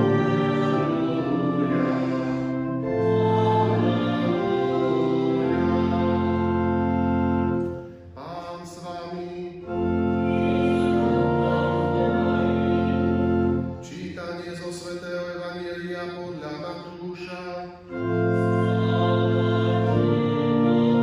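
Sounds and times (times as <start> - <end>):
people singing: 0.0 - 6.6, 10.3 - 13.6, 18.4 - 21.0
pipe organ chords: 0.0 - 21.0.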